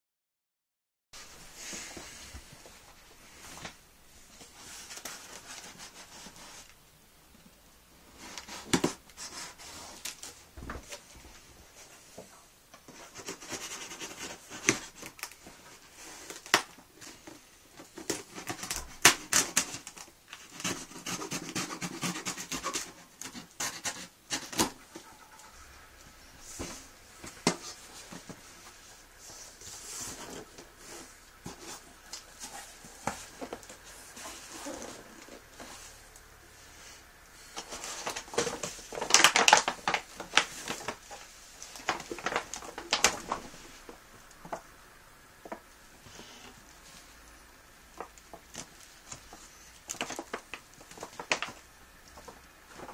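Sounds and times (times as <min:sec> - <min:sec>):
foil bags being handled: 0:12.9 - 0:44.7, 0:47.9 - 0:52.9
cardboard flaps folding: 0:37.5 - 0:44.7.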